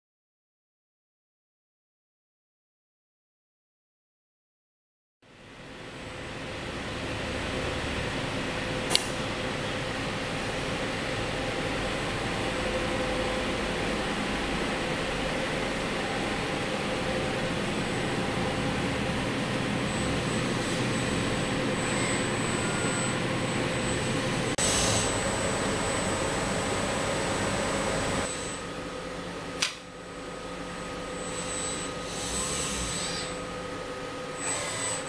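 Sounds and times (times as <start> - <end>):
machinery and ventilation whir: 5.3 - 35.0
faint high whine: 8.8 - 29.2.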